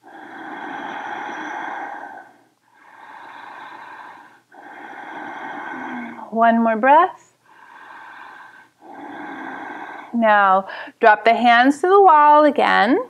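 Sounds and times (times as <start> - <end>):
woman breathing deeply: 0.0 - 6.3, 7.4 - 11.0.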